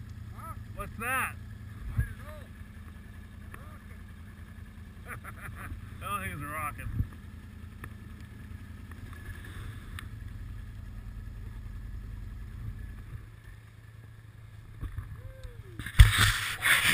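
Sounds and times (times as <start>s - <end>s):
engines idling: 0.0s - 16.9s.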